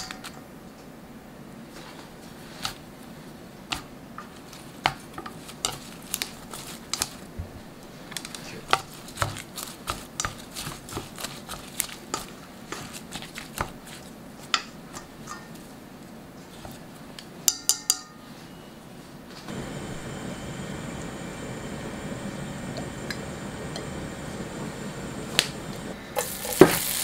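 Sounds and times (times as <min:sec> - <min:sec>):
chopsticks clicking against metal bowl: 0:09.9 - 0:11.0.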